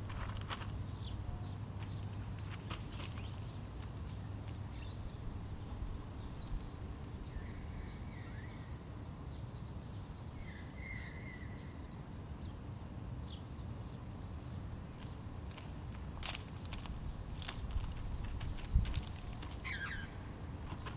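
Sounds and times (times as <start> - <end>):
small birds chirping: 0.3 - 12.6, 13.2 - 20.9
low outdoor rumble: 10.1 - 20.9.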